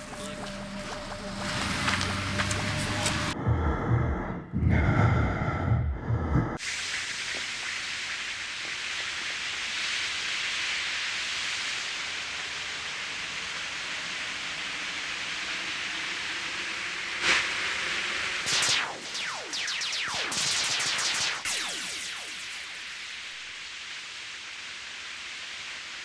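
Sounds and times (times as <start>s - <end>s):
rushing hiss of air: 6.6s - 18.8s.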